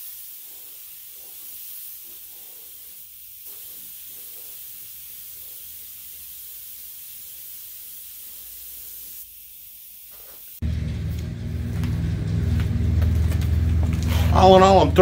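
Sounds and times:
spray gun hissing: 0.0 - 10.7.

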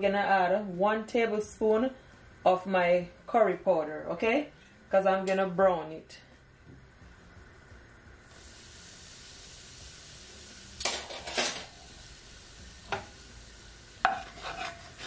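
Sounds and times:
spice sizzling in hot oil: 8.2 - 15.0.

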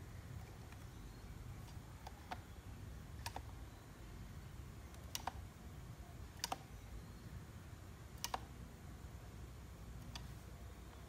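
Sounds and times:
low steady hum: 0.0 - 11.0
plastic controller clicks: 1.6 - 2.6, 3.2 - 3.5, 4.9 - 5.4, 6.3 - 6.7, 8.2 - 8.5.

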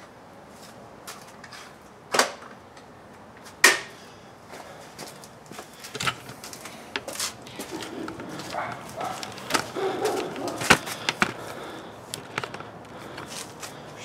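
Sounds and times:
knocks and clatters of gear: 5.8 - 14.0.

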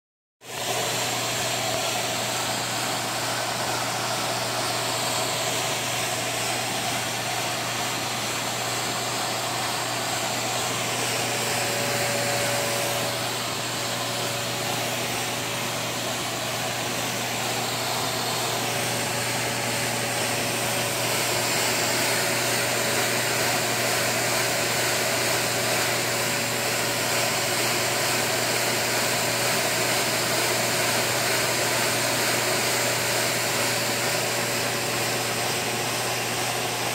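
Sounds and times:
air engine whirring hiss: 0.6 - 23.8.

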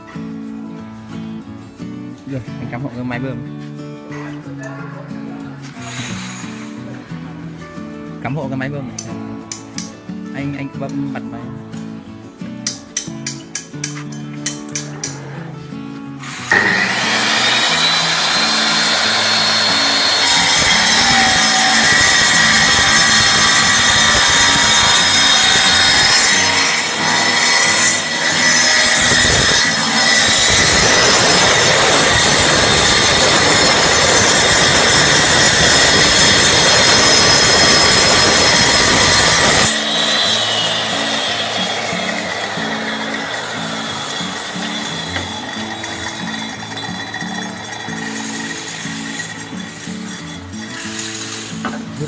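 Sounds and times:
tile cutter whining: 16.2 - 51.8
blade grinding through tile: 16.2 - 51.9.

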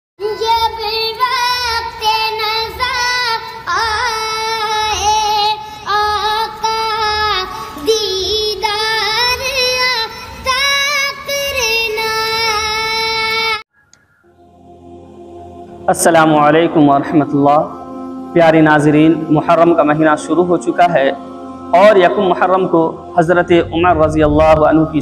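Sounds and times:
soft low beat: 23.2 - 25.0.

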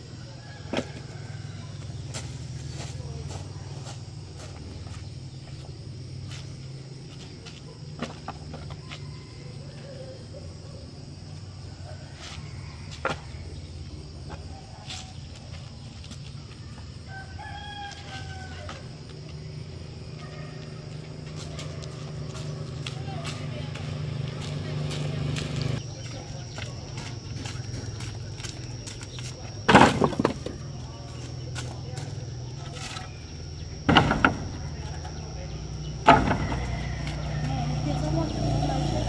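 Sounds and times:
rooster crowing: 0.2 - 2.0, 8.7 - 10.4, 11.8 - 13.4, 16.8 - 19.0, 33.0 - 39.0
steady low hum: 18.8 - 39.0
wooden boards knocking: 29.7 - 30.6, 33.8 - 35.1, 36.0 - 36.8.

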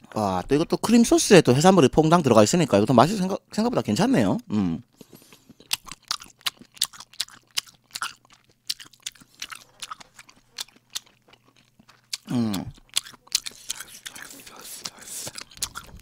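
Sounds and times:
person humming: 4.5 - 4.8, 12.3 - 12.8
wet chewing mouth clicks: 5.0 - 16.0.

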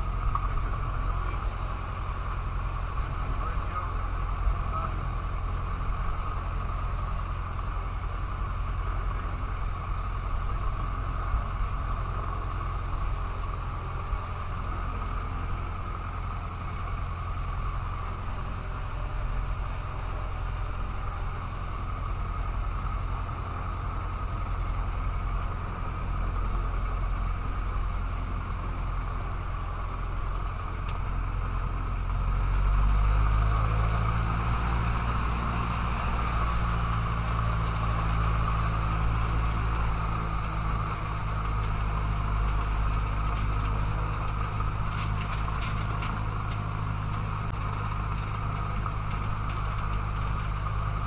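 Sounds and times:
light aircraft engine and propeller: 0.0 - 51.0.

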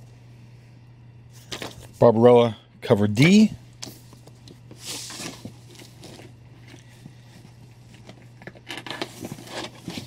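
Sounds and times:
steady low hum: 0.0 - 10.0
paper and cardboard rustling: 3.9 - 10.0.

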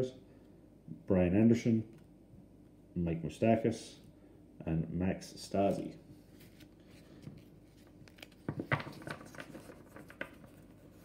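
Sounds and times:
cards rustling: 5.6 - 11.0.

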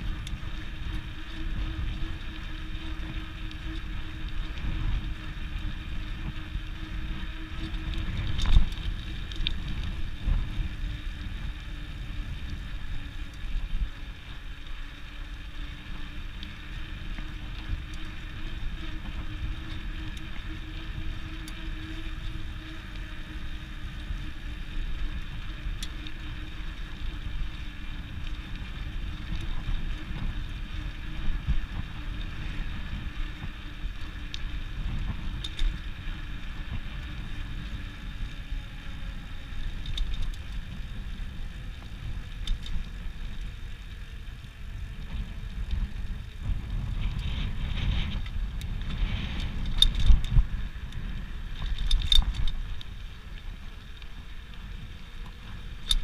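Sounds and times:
bicycle tyre noise: 0.0 - 56.0
bike ticks and rattles: 0.0 - 56.0
wind rumbling on microphone: 0.0 - 56.0.

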